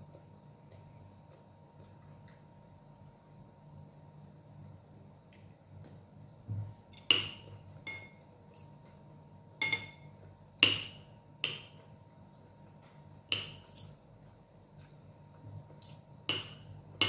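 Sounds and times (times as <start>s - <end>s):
faint steady hum: 0.0s - 17.0s
cutlery clinking on a ceramic bowl: 7.0s - 8.7s, 9.6s - 11.8s, 13.3s - 14.0s, 15.8s - 16.7s.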